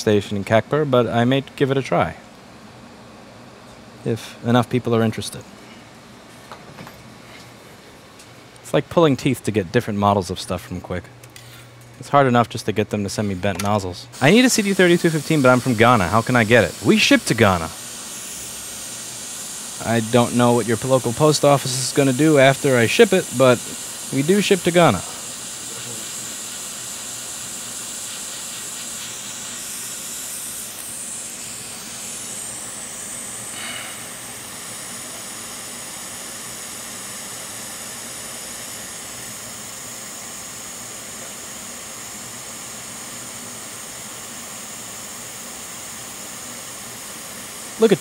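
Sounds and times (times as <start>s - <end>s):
hot air blower hissing: 13.1s - 48.0s.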